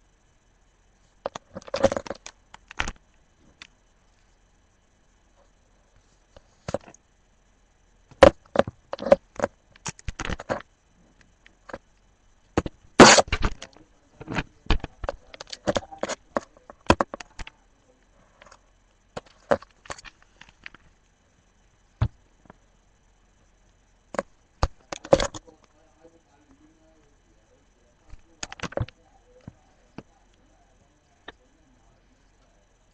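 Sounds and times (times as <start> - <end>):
plastic binder pages crackling: 8.1 - 10.6, 19.2 - 20.9.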